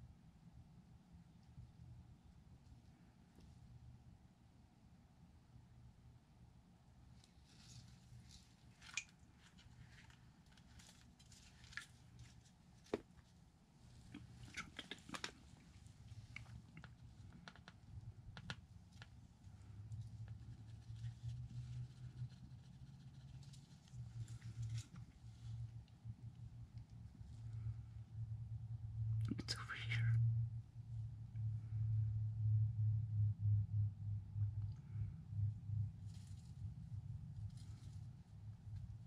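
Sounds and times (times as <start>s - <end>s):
low steady hum: 0.0s - 39.0s
faint clicks: 16.2s - 19.2s.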